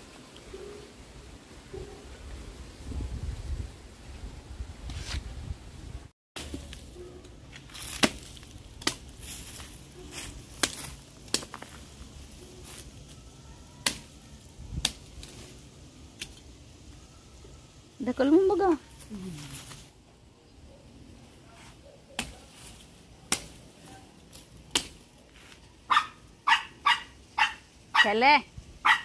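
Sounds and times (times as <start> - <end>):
blade chopping wood: 7.8 - 9.1.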